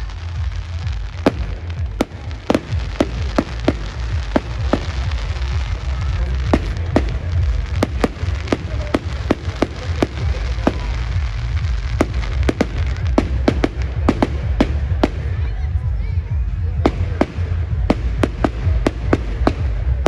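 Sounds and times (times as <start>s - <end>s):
fireworks sharp bangs: 0.0s - 15.5s, 16.5s - 20.0s
fireworks crackle: 0.0s - 20.0s
low rumble: 0.0s - 20.0s.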